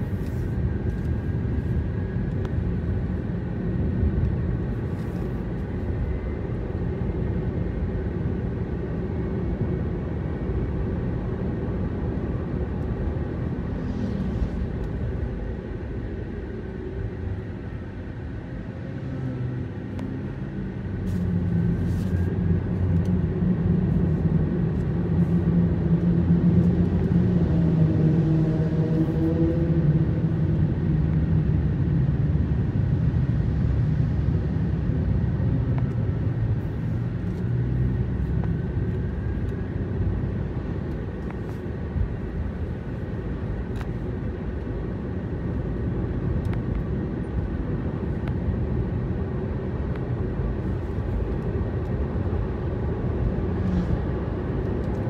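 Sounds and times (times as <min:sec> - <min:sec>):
road noise: 0:00.0 - 0:55.0.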